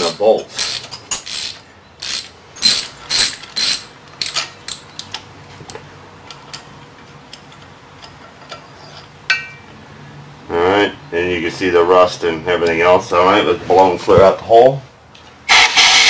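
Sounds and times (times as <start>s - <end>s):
ratchet wrench clicking: 0.5s - 4.8s
metallic clink: 9.3s - 9.7s.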